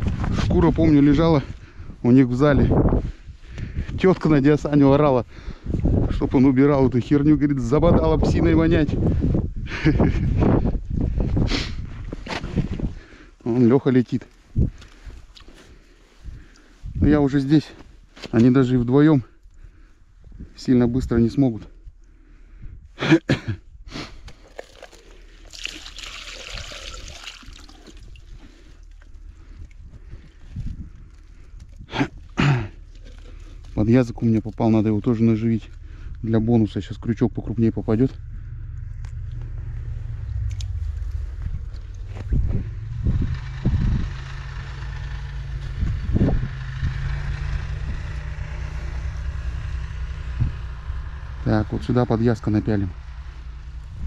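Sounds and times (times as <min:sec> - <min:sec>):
water pouring onto snow: 0:24.4 - 0:29.0
snowmobile engine idling: 0:31.2 - 0:53.8.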